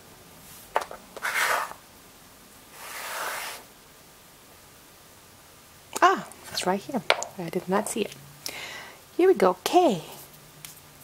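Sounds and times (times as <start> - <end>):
blocks sliding on wood: 0.7 - 1.8, 2.7 - 3.7
wooden blocks clacking: 7.1 - 8.0.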